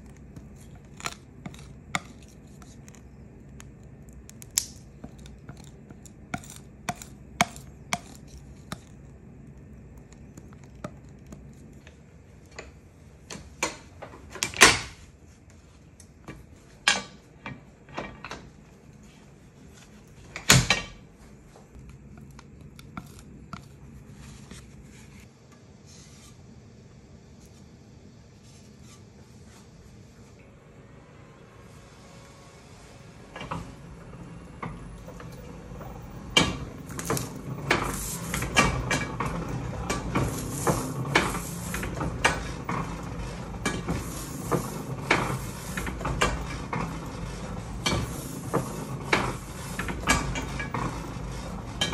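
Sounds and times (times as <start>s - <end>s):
metal knife scraping on glass: 5.0s - 8.9s.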